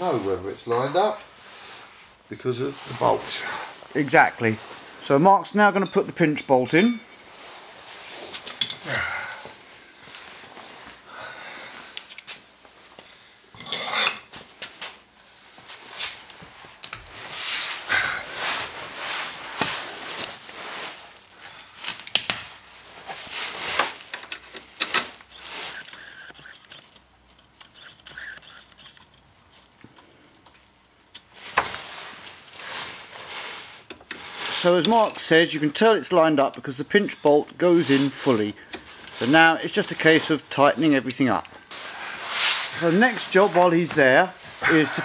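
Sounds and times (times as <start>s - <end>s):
metal clinks and scrapes: 19.5s - 19.9s, 21.7s - 22.6s, 36.9s - 39.4s
tools handled: 21.8s - 22.5s.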